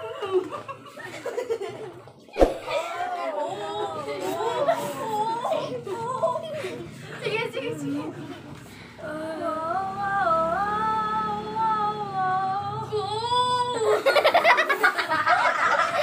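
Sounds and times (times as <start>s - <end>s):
group laughing: 0.0s - 7.5s, 13.8s - 16.0s
woman singing long vowel: 9.0s - 13.9s.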